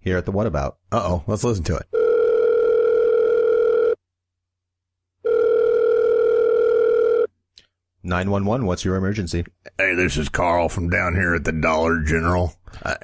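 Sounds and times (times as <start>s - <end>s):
telephone ringing tone: 2.0s - 4.0s, 5.2s - 7.3s.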